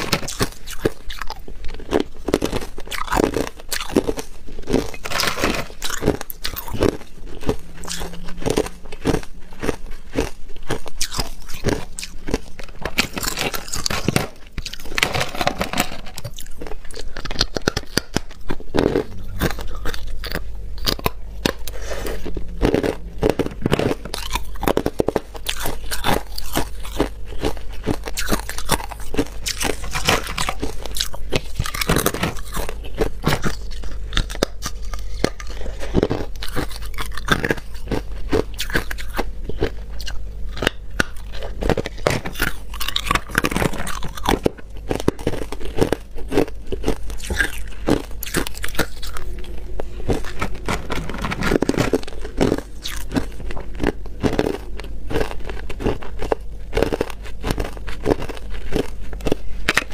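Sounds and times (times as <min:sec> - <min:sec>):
ice being chewed: 0:00.0 - 0:59.9.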